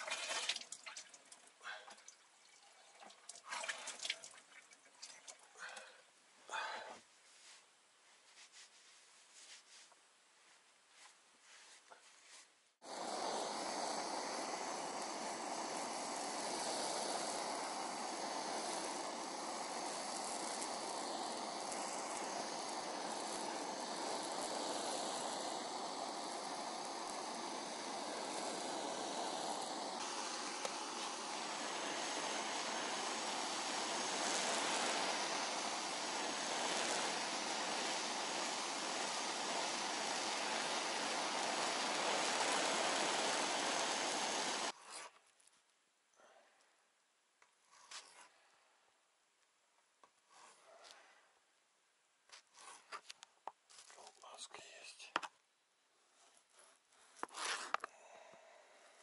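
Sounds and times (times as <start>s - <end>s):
blowtorch flame hissing: 0.0s - 0.6s, 12.8s - 45.1s, 57.2s - 59.0s.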